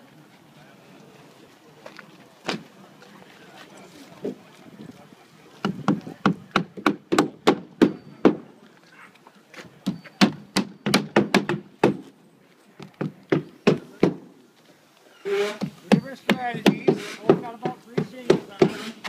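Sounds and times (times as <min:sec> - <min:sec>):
hammer striking roofing nails: 0:05.7 - 0:08.4, 0:10.2 - 0:12.0, 0:15.9 - 0:19.0.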